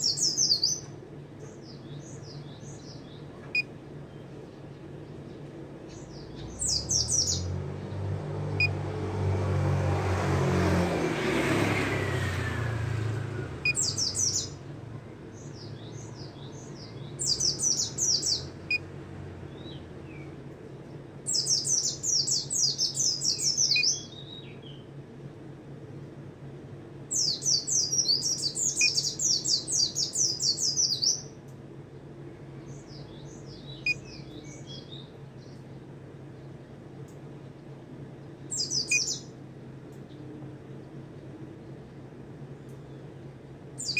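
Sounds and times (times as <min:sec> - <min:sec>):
bird twittering song: 0:00.0 - 0:08.0, 0:13.6 - 0:14.6, 0:15.3 - 0:18.8, 0:21.2 - 0:24.9, 0:27.1 - 0:31.4, 0:32.6 - 0:36.6, 0:38.2 - 0:40.3
passing vehicle rumble: 0:05.6 - 0:24.3.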